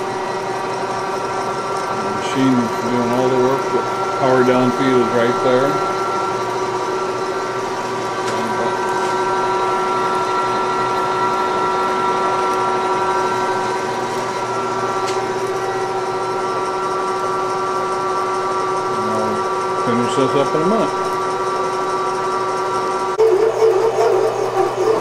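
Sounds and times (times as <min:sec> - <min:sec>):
drill cutting metal: 0:00.0 - 0:25.0
milling machine hum: 0:00.0 - 0:25.0.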